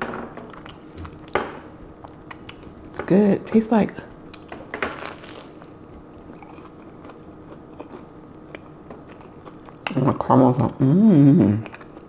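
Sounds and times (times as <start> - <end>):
chewing close to microphone: 0.5 - 1.4, 4.3 - 10.0, 11.6 - 12.0
crunchy bite into food: 4.4 - 5.8.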